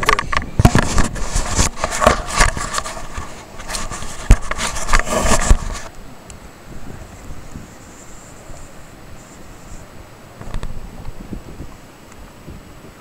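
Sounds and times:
knocks scrapes and thumps: 0.0 - 5.9.

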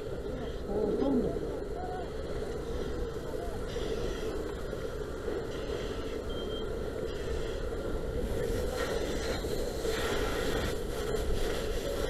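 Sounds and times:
hose water spraying: 8.2 - 12.0.

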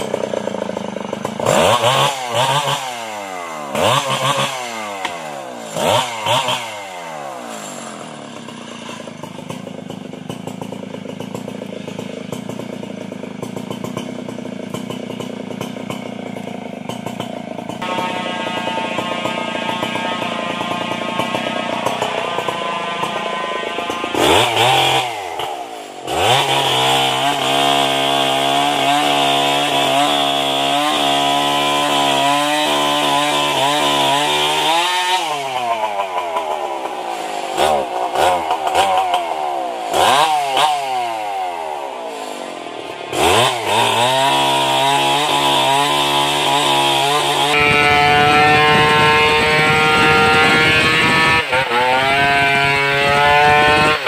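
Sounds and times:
chainsaws cutting wood: 0.0 - 54.0
higher-pitched chainsaw running: 0.0 - 54.0.

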